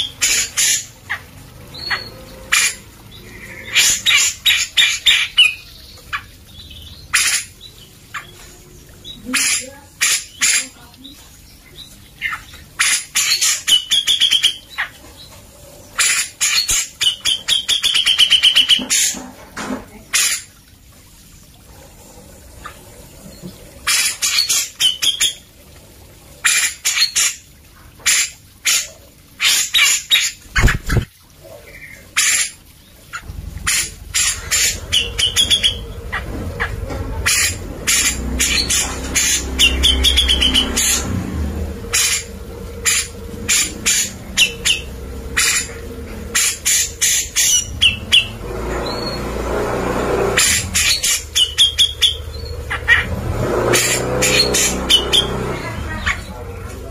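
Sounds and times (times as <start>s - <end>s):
bird chattering and trilling: 16.0s - 19.2s, 28.1s - 41.1s, 41.8s - 49.2s, 50.4s - 53.2s
low rumble: 33.2s - 50.4s.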